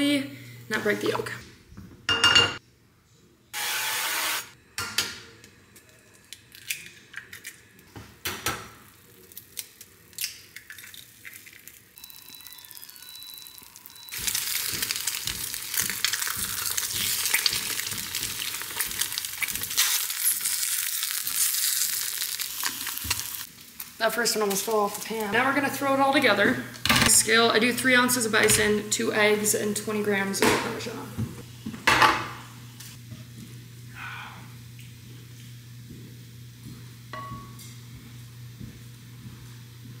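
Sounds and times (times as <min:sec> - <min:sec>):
eggs sizzling in a pan: 0:08.8 - 0:26.4
cooking spray hiss: 0:12.1 - 0:23.5.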